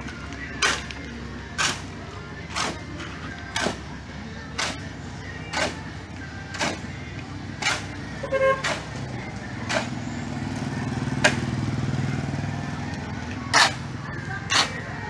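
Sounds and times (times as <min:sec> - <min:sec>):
shovel scraping concrete: 0:00.5 - 0:03.8, 0:05.5 - 0:05.8, 0:07.6 - 0:09.0, 0:09.6 - 0:10.0, 0:13.4 - 0:15.0
motorcycle engine passing: 0:08.7 - 0:14.8.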